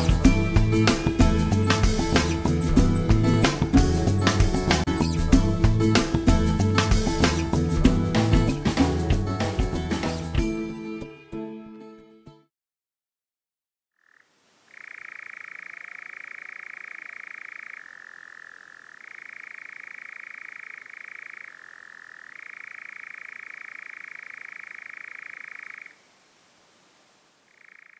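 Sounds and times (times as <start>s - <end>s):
nightjar churring trill: 14.0s - 26.0s, 27.5s - 27.9s.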